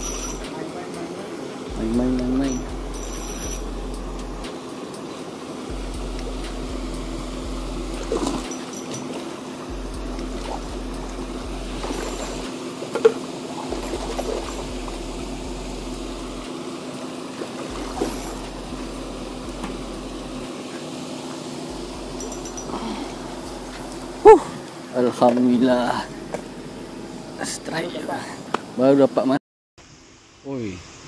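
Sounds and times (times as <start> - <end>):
low steady hum: 0.0 - 28.6
water splashing and trickling: 7.8 - 15.3, 17.3 - 19.8.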